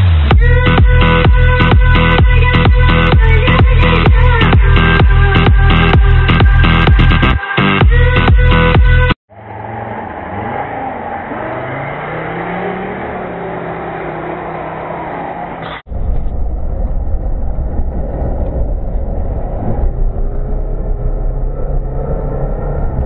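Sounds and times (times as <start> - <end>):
engine revving: 0.0 - 23.0
deep engine rumble inside cabin: 15.4 - 23.0.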